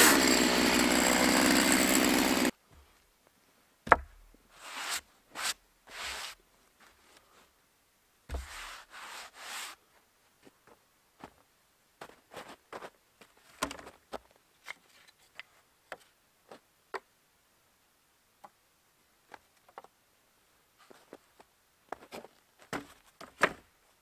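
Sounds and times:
soft knocks of wooden beam: 3.8s - 4.3s
gloved hand rubbing wood: 4.5s - 6.4s, 8.3s - 9.8s.

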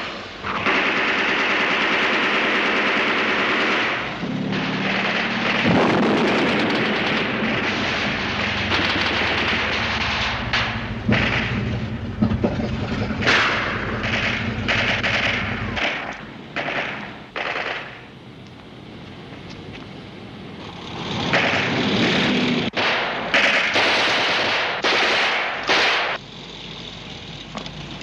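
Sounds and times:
machine-gun and rifle fire: 0.4s - 12.0s, 13.2s - 18.1s, 21.2s - 26.2s
steady low rumble: 0.8s - 24.9s.

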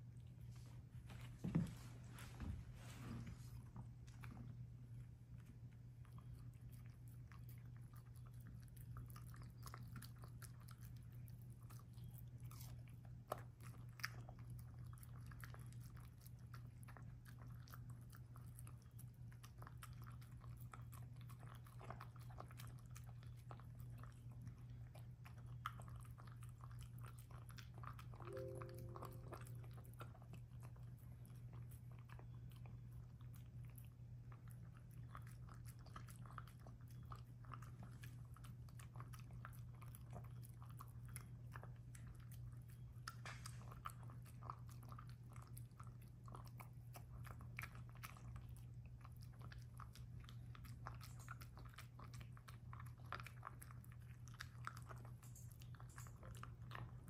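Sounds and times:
dog chewing food: 0.0s - 57.0s.

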